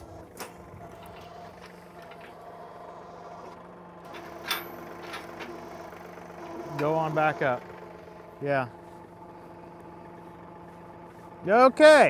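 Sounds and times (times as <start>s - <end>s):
tractor diesel engine idling: 0.0s - 12.0s
sharp metal clank: 4.2s - 5.4s.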